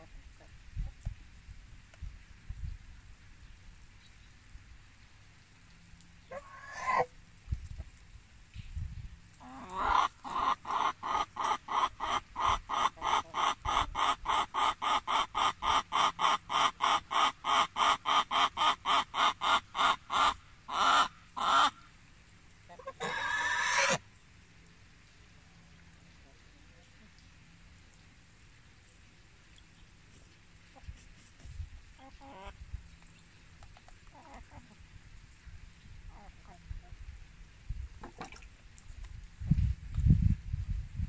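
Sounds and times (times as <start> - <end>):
chicken cackling: 6.3 - 7.1, 9.4 - 21.8, 22.7 - 24.0, 32.0 - 32.6, 34.1 - 34.8.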